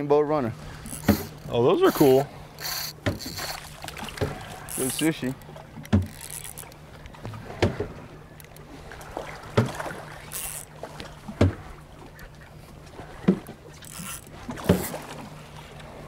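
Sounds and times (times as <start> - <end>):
water thumping against boat hull: 0.8 - 2.2, 2.9 - 8.0, 9.1 - 11.8, 13.0 - 15.2.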